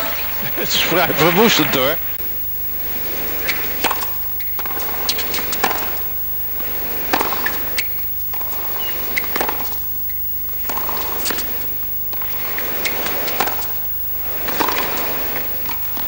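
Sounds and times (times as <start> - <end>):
crowd hum: 0.0 - 9.8
tennis ball pops: 3.5 - 6.1, 7.0 - 9.9.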